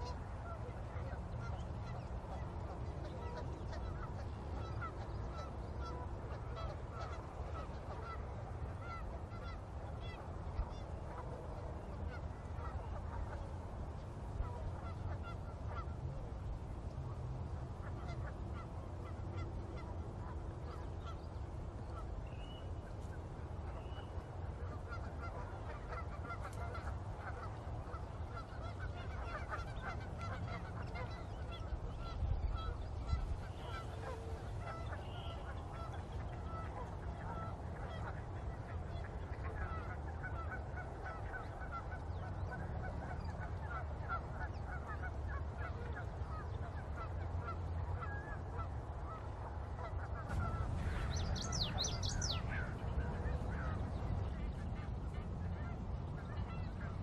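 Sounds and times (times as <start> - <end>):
birds honking: 0.0 - 11.2, 23.7 - 57.0
low rumble: 50.3 - 56.9.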